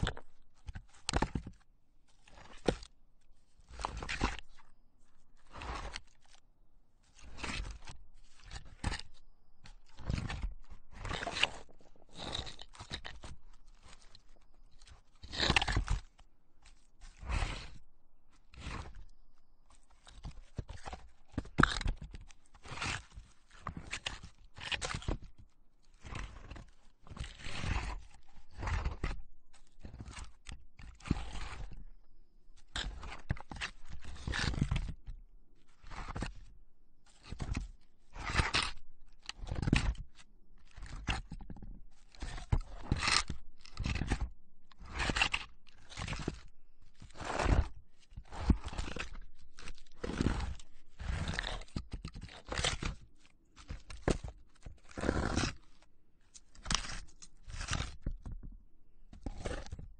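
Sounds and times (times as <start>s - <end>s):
log scraping against boulder: 10.0s - 14.3s, 15.2s - 16.1s, 16.7s - 17.8s, 26.0s - 31.9s, 32.8s - 35.0s, 35.8s - 36.3s, 40.7s - 53.0s, 53.6s - 55.8s, 56.6s - 57.8s.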